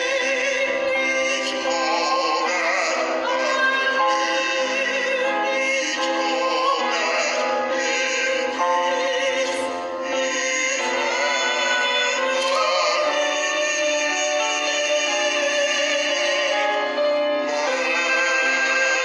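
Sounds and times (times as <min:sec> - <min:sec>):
woman and man singing hymn: 0:00.0 - 0:19.0.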